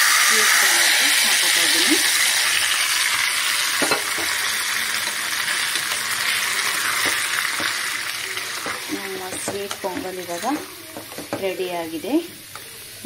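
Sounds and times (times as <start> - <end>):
hot fat sizzling in a pot: 0.0 - 13.0.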